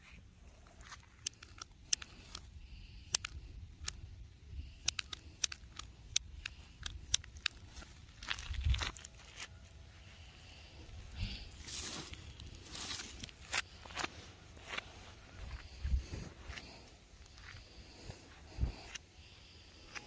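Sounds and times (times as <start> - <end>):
dry leaves crackling and rustling: 11.3 - 13.5.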